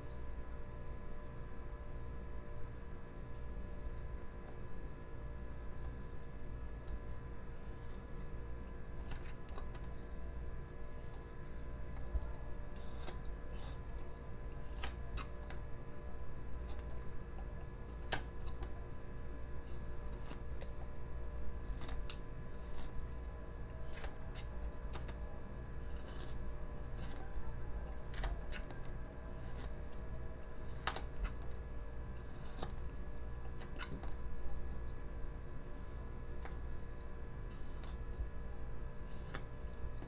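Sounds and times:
knife carving wood: 11.1 - 15.7, 19.6 - 35.0, 37.4 - 38.2, 39.1 - 40.0.

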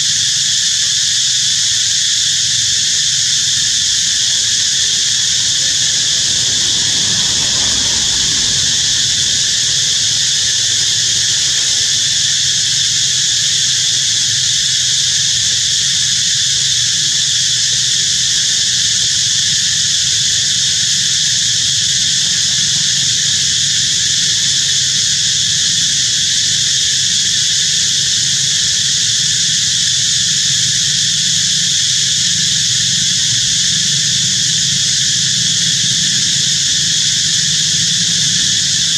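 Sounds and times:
insect chorus buzzing: 0.0 - 38.9
low rumble: 4.1 - 12.6.

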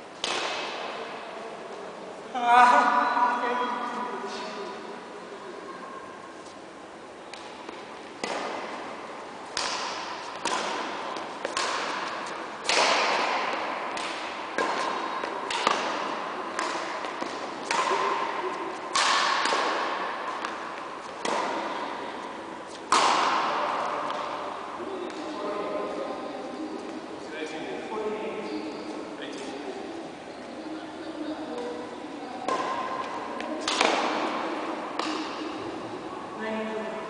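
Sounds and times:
racket smacking shuttlecock: 0.2 - 1.0, 7.3 - 25.4, 32.4 - 35.8.

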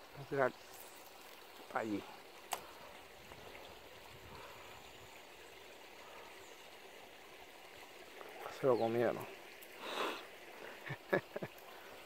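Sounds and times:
creek running water: 0.0 - 12.0.

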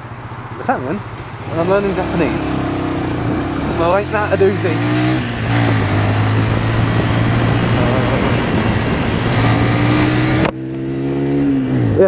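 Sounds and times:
motorcycle engine humming: 0.0 - 12.0
wind noise on microphone: 2.5 - 12.0.

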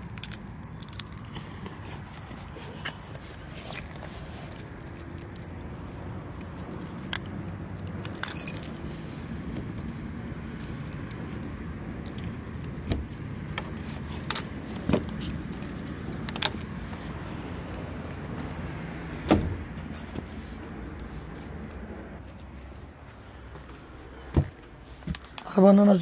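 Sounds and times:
keys jangling: 0.0 - 1.5, 6.4 - 8.9, 10.6 - 13.2, 14.0 - 16.6
vehicle engine rumbling: 0.0 - 26.0.

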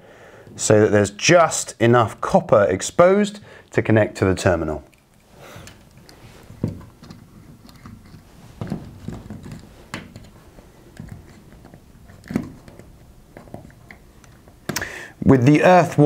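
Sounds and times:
light handling clicks and rustles: 4.8 - 14.8.

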